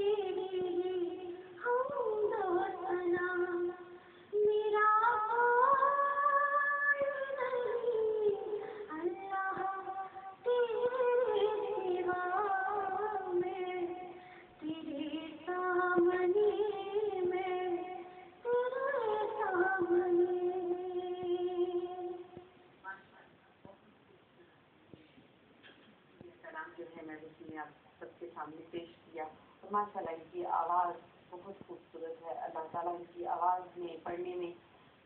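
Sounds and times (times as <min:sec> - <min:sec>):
woman singing through a tv speaker: 0:00.0 - 0:23.4, 0:26.2 - 0:34.7.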